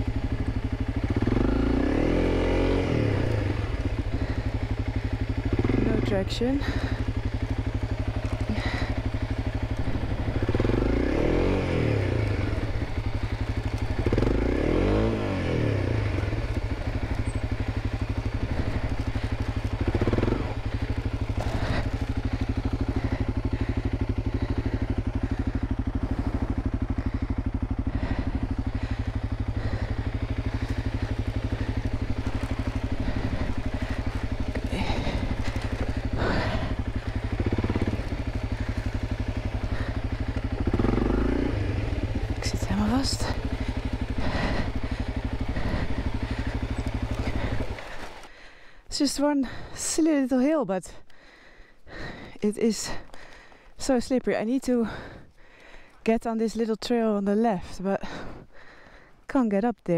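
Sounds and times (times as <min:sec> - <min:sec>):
motorcycle engine idling and revving: 0:00.0 - 0:59.9.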